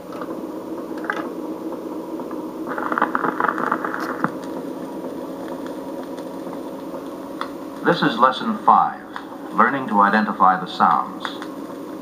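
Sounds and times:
speaker hum and surface noise: 0:00.0 - 0:12.0
record needle crackle and scratching: 0:02.2 - 0:09.4.

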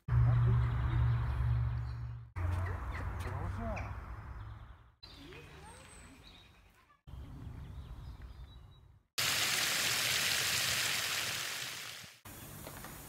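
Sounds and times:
fountain water splashing: 0:09.2 - 0:12.2.

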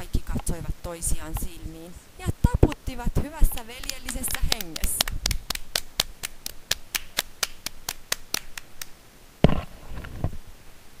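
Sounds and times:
hand claps: 0:03.5 - 0:09.0.

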